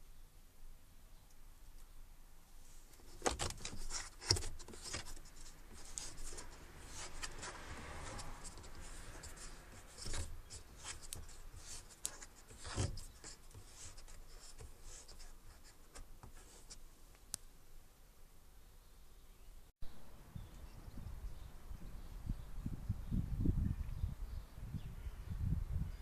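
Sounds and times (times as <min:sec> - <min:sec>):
plastic rubbing and scraping: 0:02.8 - 0:16.8.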